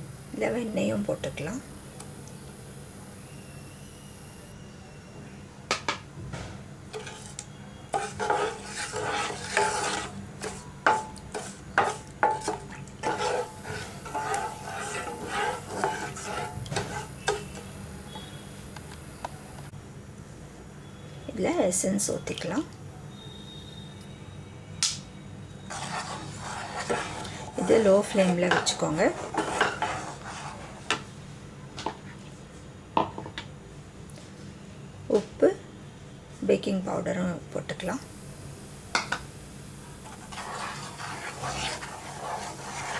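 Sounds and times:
spatula scraping and swishing: 7.0s - 17.7s, 25.7s - 31.0s, 40.0s - 42.9s.

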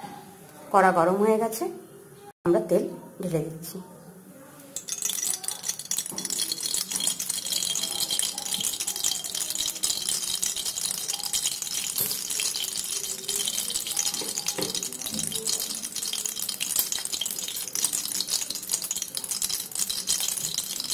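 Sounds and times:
hot oil crackling and spitting: 4.8s - 20.9s.

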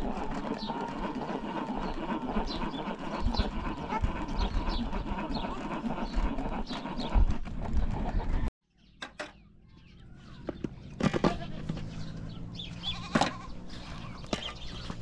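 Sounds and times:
plastic chopper clicks: 0.0s - 8.0s.

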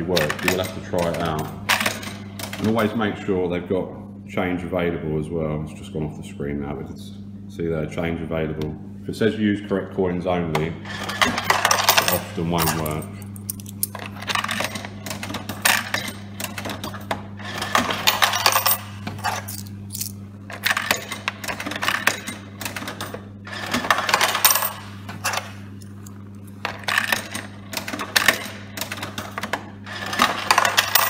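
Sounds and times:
coins rattling in vending machine: 0.0s - 3.0s, 10.9s - 31.0s
steady low hum: 0.0s - 31.0s.

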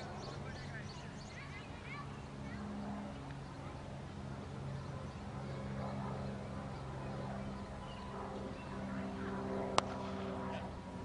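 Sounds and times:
steady low hum: 0.0s - 11.0s
cricket bat hitting ball: 9.7s - 10.2s.

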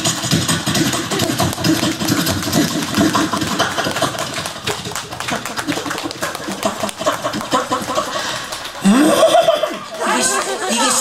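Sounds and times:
person imitating an engine vocally: 6.5s - 9.8s.

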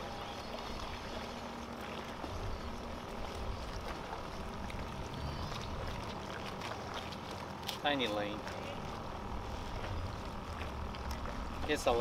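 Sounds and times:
low rumble: 2.0s - 7.0s, 8.6s - 12.0s.

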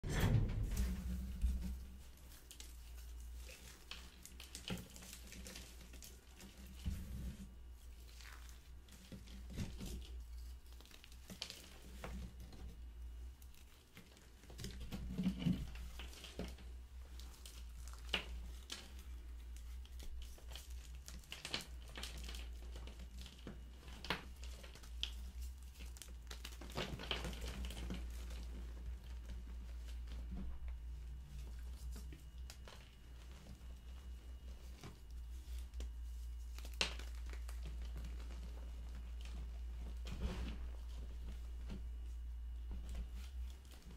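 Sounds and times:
steady low hum: 0.0s - 11.1s
powdery squishing: 1.4s - 43.9s.

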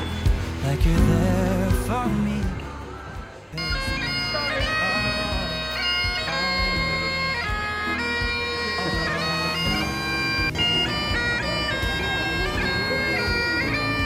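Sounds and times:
bagpipe chanter melody: 3.6s - 14.0s
bagpipe drone: 3.6s - 14.0s.

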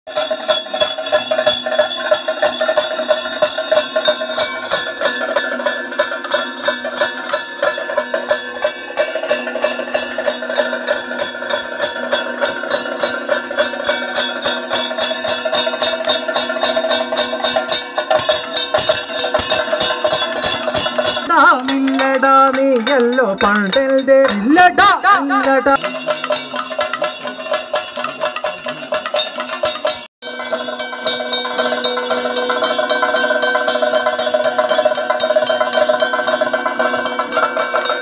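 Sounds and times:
brass hand cymbals ringing: 0.1s - 23.1s, 25.4s - 38.0s
fast drum strokes: 0.1s - 38.0s.

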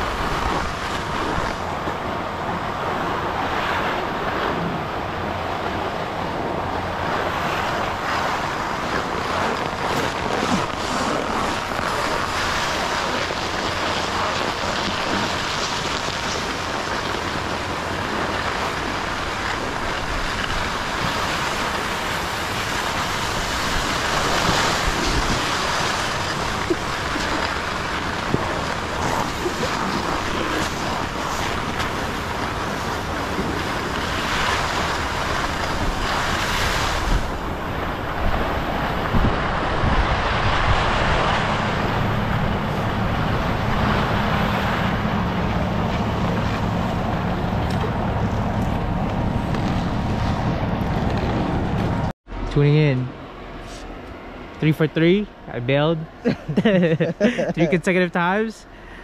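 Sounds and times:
wind on camera microphone: 0.0s - 52.1s
skis hissing on snow: 8.1s - 17.8s, 18.5s - 37.4s.

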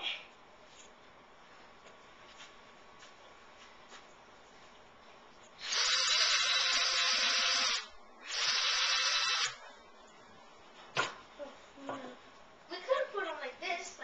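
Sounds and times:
handheld power tool running: 5.6s - 9.6s.

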